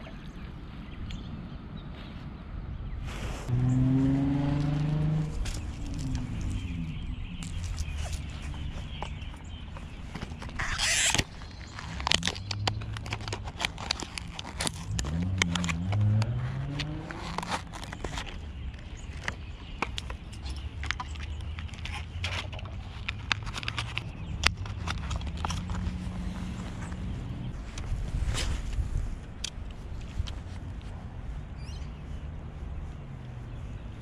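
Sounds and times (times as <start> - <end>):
fishing gear clicks and rustles: 4.5 - 31.5.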